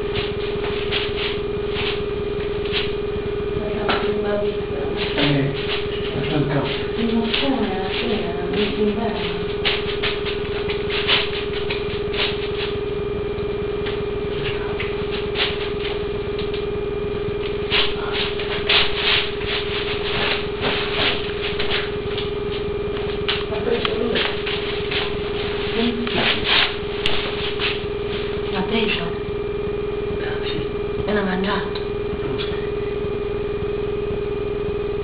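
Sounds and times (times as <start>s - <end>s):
rustles and clicks: 0.0s - 3.1s, 5.0s - 28.7s
steady hum: 0.0s - 35.0s.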